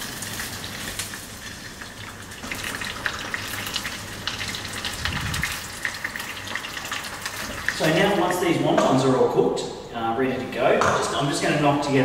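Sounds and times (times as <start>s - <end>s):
food deep-frying in hot oil: 0.0s - 8.4s.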